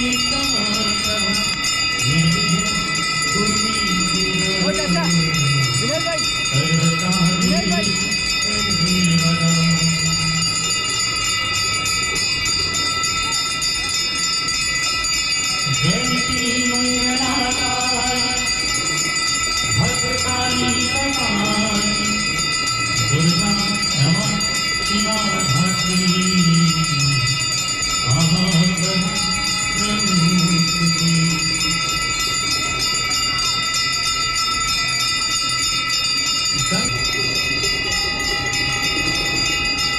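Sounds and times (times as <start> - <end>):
bells ringing: 0.0 - 39.9
man singing a hymn: 19.8 - 22.2.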